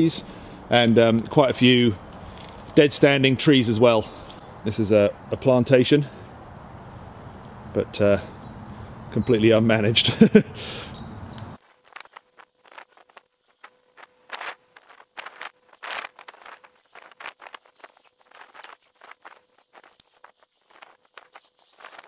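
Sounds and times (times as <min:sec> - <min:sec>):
footsteps in vegetation: 0:02.0 - 0:02.9, 0:11.3 - 0:22.0
camping gear rustling and clicking: 0:02.1 - 0:02.9, 0:11.4 - 0:22.0.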